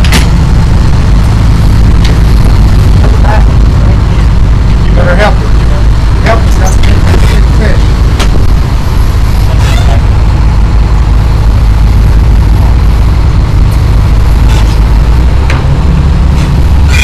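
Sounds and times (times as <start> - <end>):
boat engine rumbling: 0.0 - 17.0.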